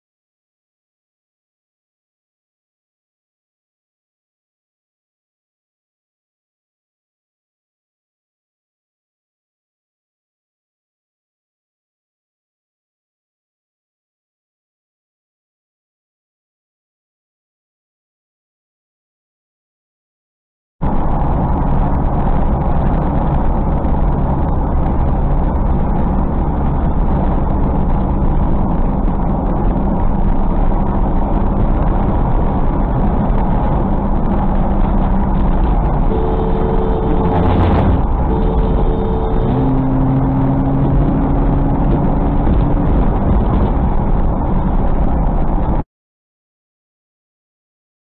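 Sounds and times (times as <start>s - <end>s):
car driving at highway speed: 20.8s - 45.8s
two-tone car horn: 36.1s - 41.7s
low single-note horn: 36.1s - 42.9s.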